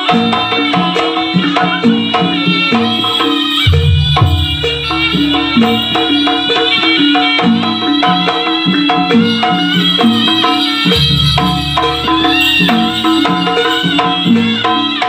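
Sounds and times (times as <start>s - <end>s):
gamelan dance music: 0.0s - 15.0s
hand drums: 0.0s - 15.0s
metal pitched percussion: 0.0s - 15.0s
deep low note: 3.7s - 6.5s.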